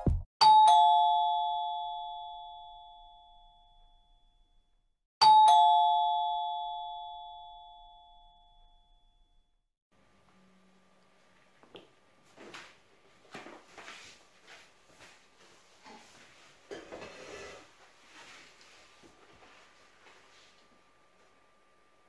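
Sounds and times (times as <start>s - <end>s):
two-note ding-dong chime: 0.4s - 4.0s, 5.2s - 8.8s.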